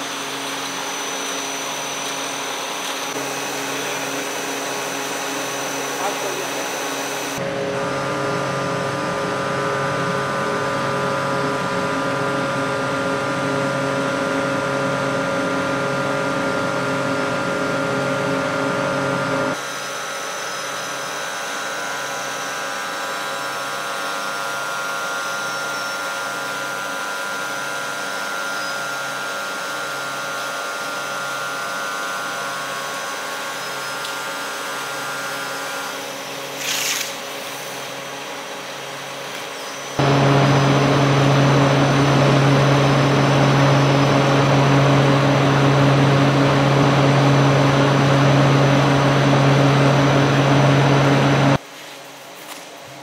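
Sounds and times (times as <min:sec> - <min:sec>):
machinery humming and whining: 0:00.0 - 0:51.6
short hiss: 0:36.6 - 0:37.2.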